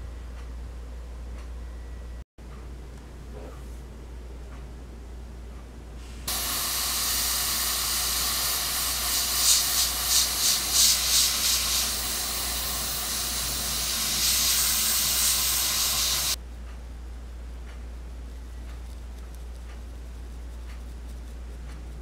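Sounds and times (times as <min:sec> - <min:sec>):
airbrush spraying hiss: 0:06.0 - 0:16.4.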